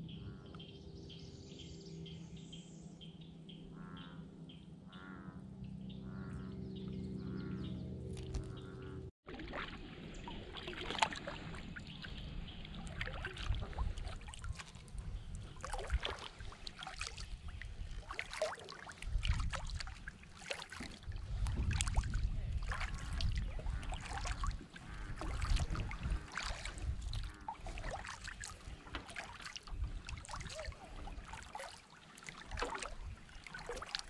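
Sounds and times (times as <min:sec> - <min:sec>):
paddle splashing water: 0:09.2 - 0:34.0.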